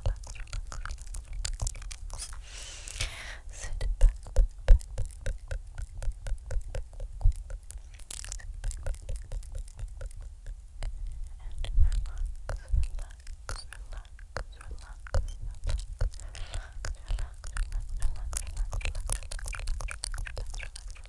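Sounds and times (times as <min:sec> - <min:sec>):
wet mouth clicks and smacks: 0:00.0 - 0:21.0
breathy hiss: 0:02.2 - 0:03.7, 0:16.2 - 0:17.4.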